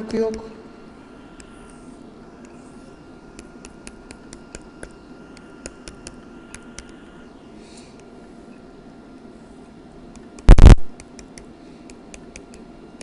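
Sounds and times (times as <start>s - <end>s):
faint steady hum: 0.0s - 13.0s
stylus tapping drawing tablet: 3.4s - 7.0s, 10.1s - 12.6s.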